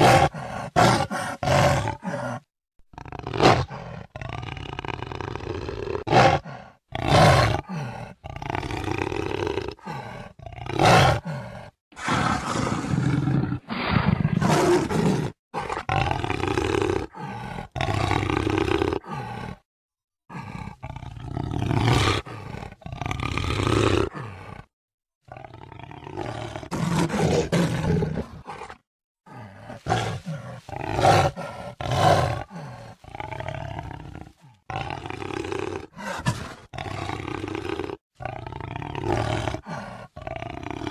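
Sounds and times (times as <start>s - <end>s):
jaguar roaring: 0.0s - 2.4s, 3.0s - 19.6s, 20.3s - 24.7s, 25.3s - 40.9s.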